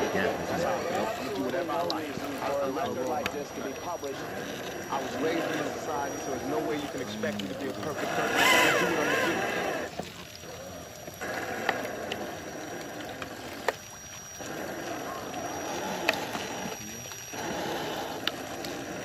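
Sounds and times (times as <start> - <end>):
toy truck motor and tyres in mud: 0.0 - 19.0.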